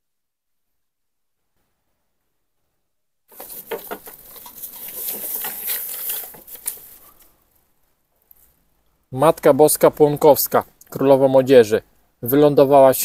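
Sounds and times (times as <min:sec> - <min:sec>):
plastic bag crinkling and rattling: 0:03.3 - 0:07.3.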